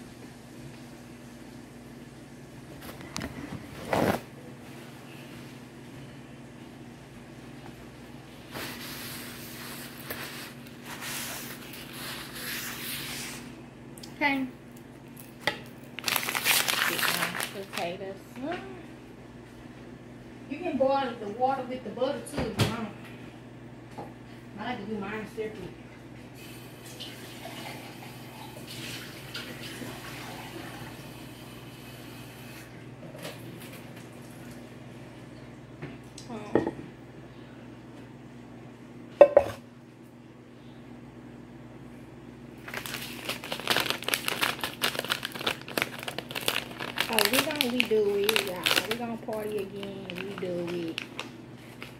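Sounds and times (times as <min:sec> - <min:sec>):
low electrical hum: 0:00.0 - 0:51.9
things rustling on kitchen counter: 0:02.8 - 0:05.6, 0:08.4 - 0:13.5
steady low hum: 0:31.2 - 0:51.9.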